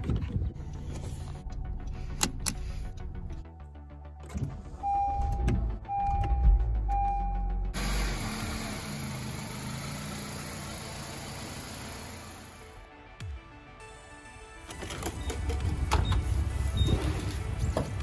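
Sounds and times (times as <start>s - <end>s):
car engine starting: 4.1s - 12.8s.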